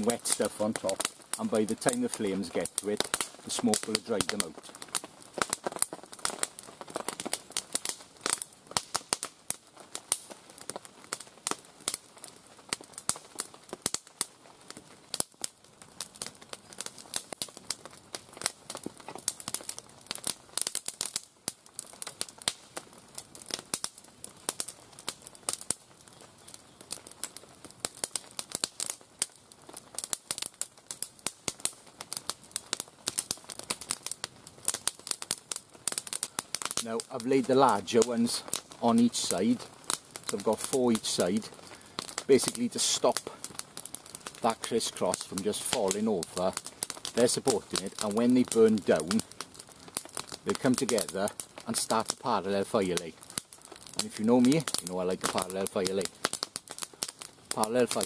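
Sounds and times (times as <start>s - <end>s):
kindling fire crackling and popping: 0.0s - 58.0s.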